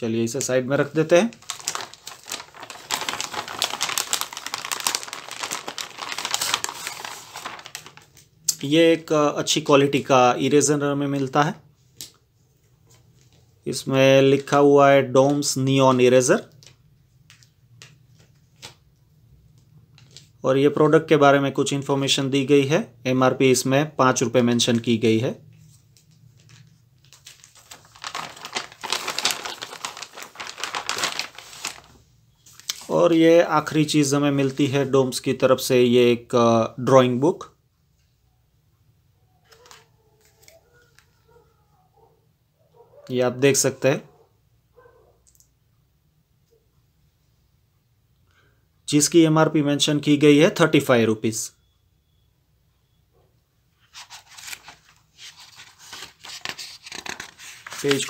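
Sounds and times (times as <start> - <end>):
plastic packet crinkling: 0.9 - 8.3, 26.2 - 32.9, 53.9 - 58.0.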